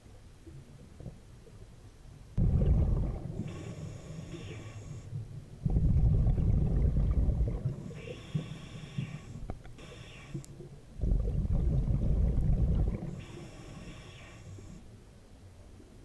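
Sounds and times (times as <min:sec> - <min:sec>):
bubbling exhale underwater: 0:02.4 - 0:04.4, 0:05.6 - 0:09.2, 0:11.0 - 0:13.6
hissing regulator inhale: 0:03.4 - 0:05.2, 0:07.7 - 0:10.6, 0:13.0 - 0:14.9.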